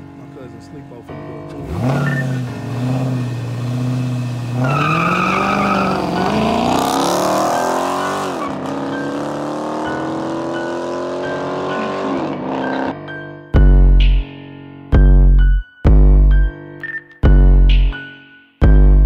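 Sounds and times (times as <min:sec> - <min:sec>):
car engine accelerating hard: 0:01.5 - 0:13.0
deep bass boom: 0:13.6 - 0:14.2, 0:15.0 - 0:16.5, 0:17.2 - 0:18.0, 0:18.6 - 0:19.0.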